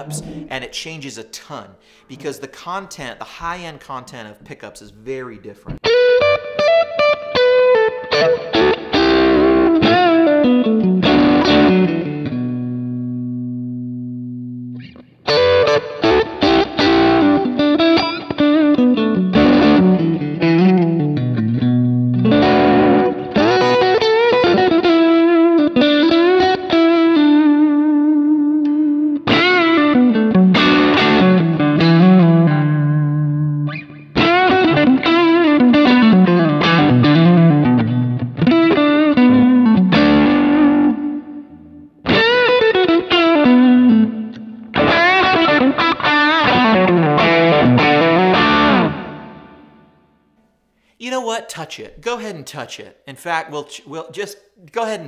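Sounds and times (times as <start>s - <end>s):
electric guitar lead melody: 0.0s - 0.5s, 5.7s - 50.4s.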